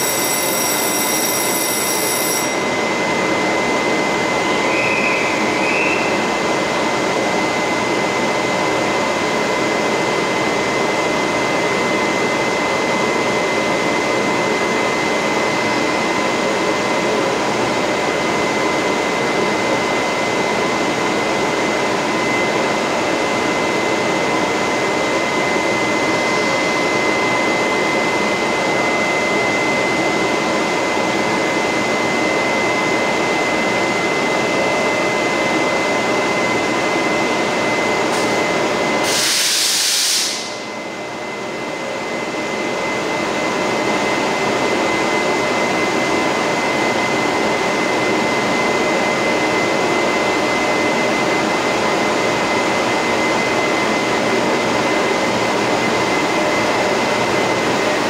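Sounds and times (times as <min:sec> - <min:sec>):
high whine: 0:00.0 - 0:08.0
air hiss: 0:39.0 - 0:40.6.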